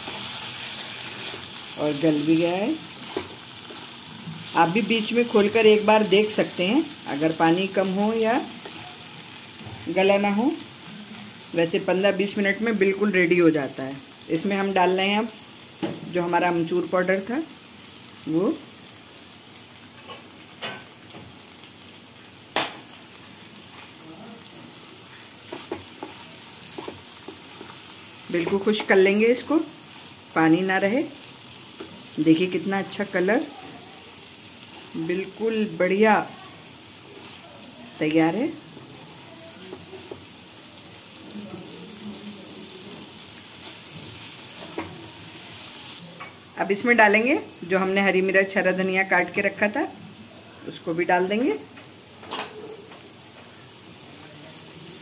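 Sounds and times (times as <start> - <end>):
food sizzling in oil: 0.0 - 55.0
wooden spatula stirring: 25.0 - 30.2.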